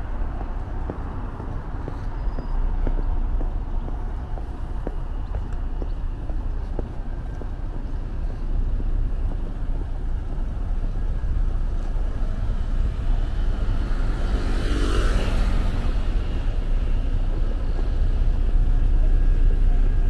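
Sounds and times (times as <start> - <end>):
low rumble of street traffic: 0.0 - 20.0
motorcycle passing: 13.3 - 17.9.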